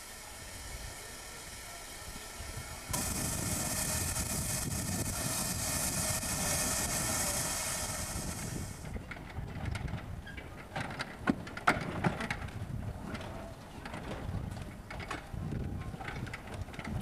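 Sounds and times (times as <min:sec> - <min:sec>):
steam locomotive hissing steam: 0:00.0 - 0:09.0.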